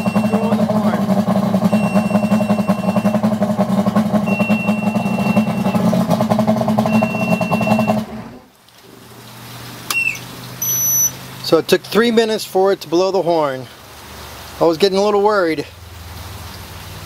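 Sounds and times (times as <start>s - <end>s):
warning horn beeping: 0.0s - 8.2s
outboard engine running: 0.0s - 12.8s.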